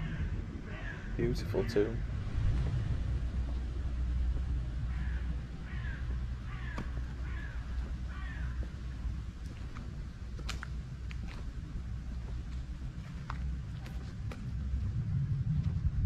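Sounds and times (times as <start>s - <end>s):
crow cawing: 0.0s - 2.0s, 4.8s - 9.0s
steady low rumble: 0.0s - 16.0s.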